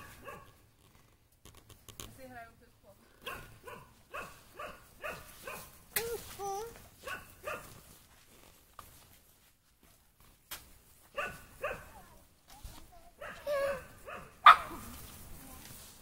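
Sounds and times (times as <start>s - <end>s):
small dogs barking: 0.0s - 0.6s, 3.2s - 5.8s, 7.0s - 7.8s, 11.1s - 12.0s, 13.1s - 14.9s.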